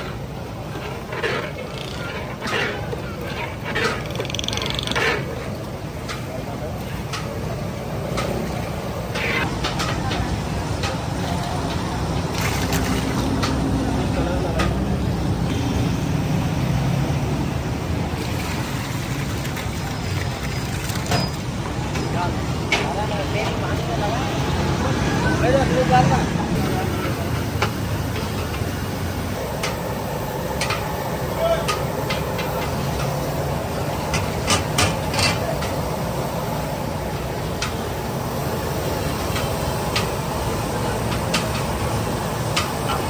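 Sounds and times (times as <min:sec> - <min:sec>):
low cooking rumble: 0:00.0 - 0:04.0, 0:26.5 - 0:43.0
busy street traffic rumble: 0:00.0 - 0:43.0.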